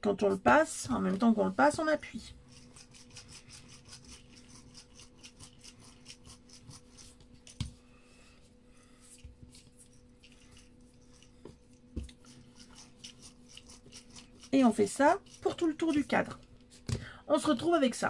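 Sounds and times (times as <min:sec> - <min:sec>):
jar scraping and rubbing on clay: 0:00.7 - 0:07.6, 0:12.1 - 0:16.3.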